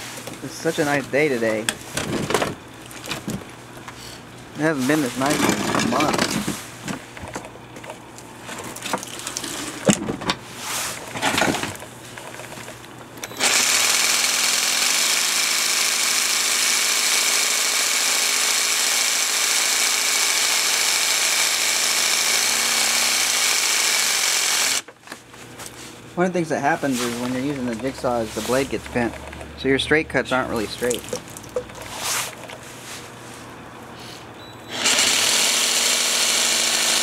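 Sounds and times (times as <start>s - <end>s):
jigsaw cutting tile: 13.4s - 24.8s, 34.7s - 37.0s.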